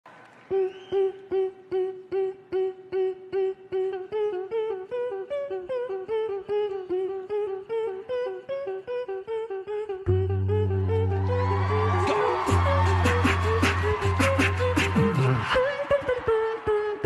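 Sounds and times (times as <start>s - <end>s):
deep steady bass tone: 10.1s - 15.1s
hummed staccato notes: 10.1s - 15.5s.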